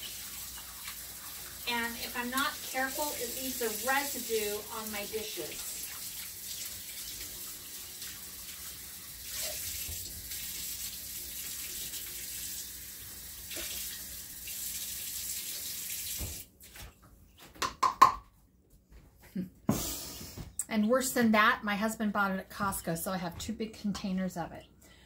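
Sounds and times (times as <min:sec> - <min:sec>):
tap running into sink: 0:16.1 - 0:16.4.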